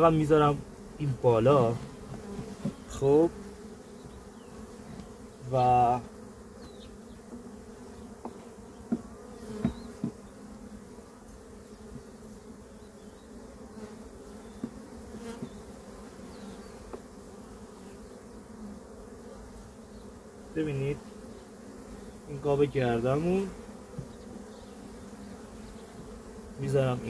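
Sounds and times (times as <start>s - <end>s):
honey bees buzzing: 0.0s - 27.0s
knocks on wooden hive boxes: 1.8s - 3.0s, 8.2s - 10.4s, 14.5s - 15.7s, 16.8s - 17.1s, 23.8s - 24.3s.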